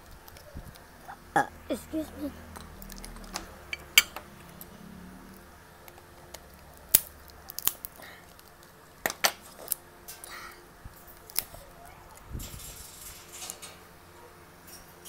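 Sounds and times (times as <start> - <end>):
crab shell cracking: 5.8 - 10.4, 11.0 - 11.6.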